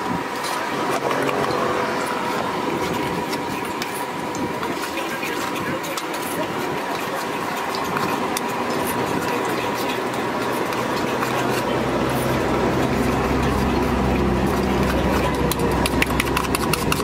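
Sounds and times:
low engine rumble: 0.0 - 17.0
street noise: 0.0 - 17.0
spoon beating eggs in steel bowl: 15.4 - 17.0.

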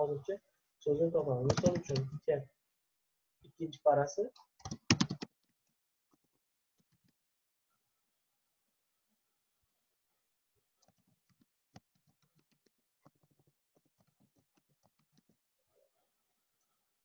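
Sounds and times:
keyboard typing clicks: 1.4 - 2.2, 4.6 - 5.3.

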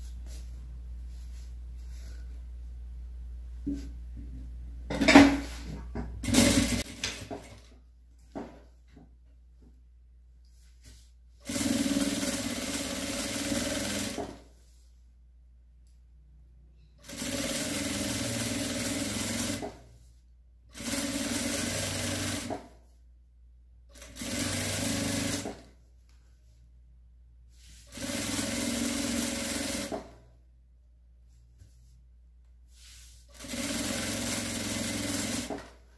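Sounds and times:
sewing machine stitching: 6.2 - 7.7, 11.4 - 14.4, 17.0 - 19.8, 20.7 - 22.7, 23.9 - 25.7, 27.8 - 30.2, 33.3 - 35.8.

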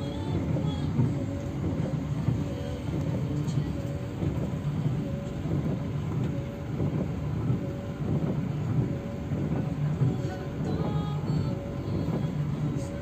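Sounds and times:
coach engine and road rumble: 0.0 - 13.0.

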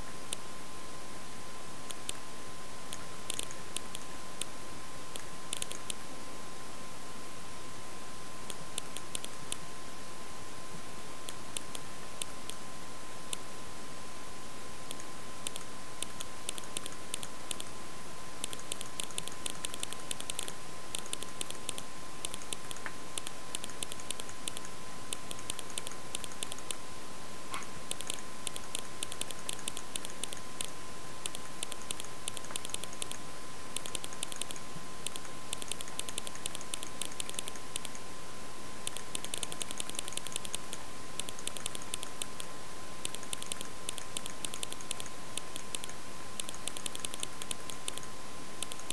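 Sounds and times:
high whine and hiss: 0.0 - 48.9
keyboard and mouse clicking: 1.9 - 2.2, 2.9 - 4.5, 5.1 - 6.0, 8.5 - 9.6, 11.3 - 12.6, 14.9 - 17.7, 18.4 - 26.8, 27.5 - 33.2, 33.8 - 38.0, 38.8 - 48.9.

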